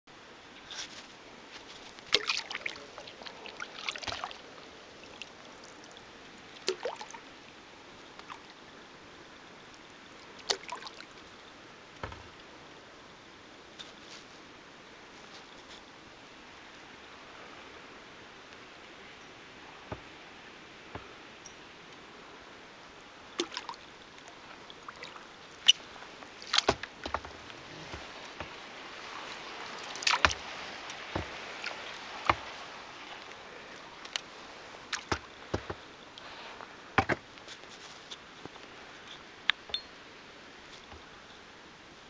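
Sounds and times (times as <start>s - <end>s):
faint steady hiss: 0.1s - 42.0s
paddle dipping and dripping: 1.7s - 12.9s, 19.3s - 22.2s, 22.9s - 37.4s, 38.6s - 41.4s
paddle knocking on hull: 26.5s - 28.6s, 31.1s - 31.4s.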